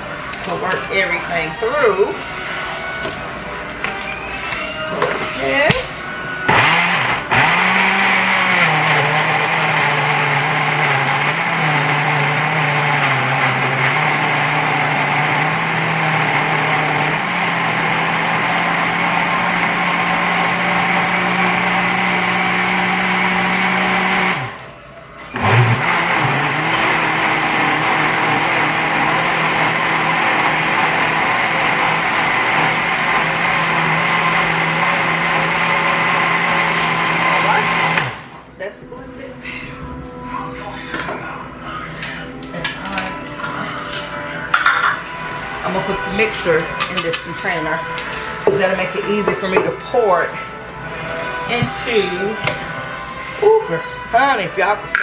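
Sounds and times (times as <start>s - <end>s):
blender running: 0.0s - 24.7s, 25.3s - 38.5s, 44.9s - 55.0s.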